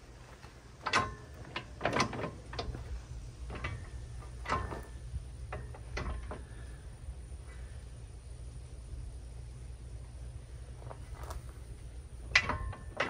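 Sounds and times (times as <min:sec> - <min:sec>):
metal grapple clanking: 0:00.4 - 0:06.8, 0:10.9 - 0:13.0.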